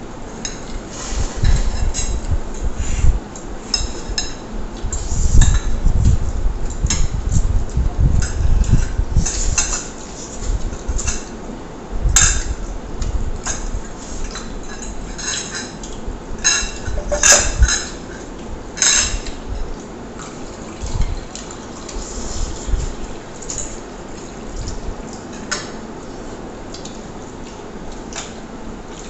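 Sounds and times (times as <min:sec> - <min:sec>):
forks clinking on plates: 0:16.4 - 0:18.0.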